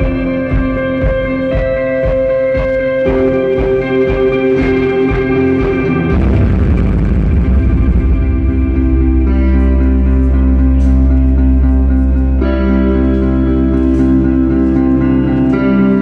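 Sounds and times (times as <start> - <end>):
rhythmic pulse: 0.0 - 12.6
picked guitar notes: 0.0 - 16.0
heavy low bass swell: 5.9 - 13.6.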